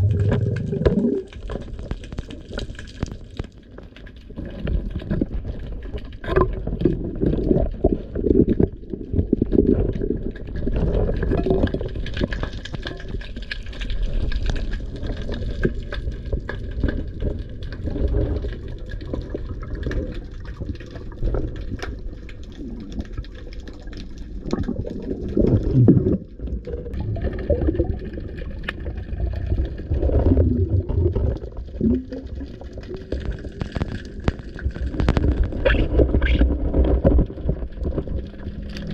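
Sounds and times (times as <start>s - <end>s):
muffled underwater sloshing: 0.0s - 38.9s.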